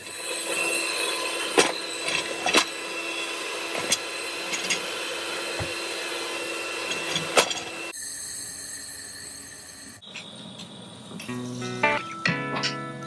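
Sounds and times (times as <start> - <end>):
electric hand mixer whisking: 0.0 - 8.0.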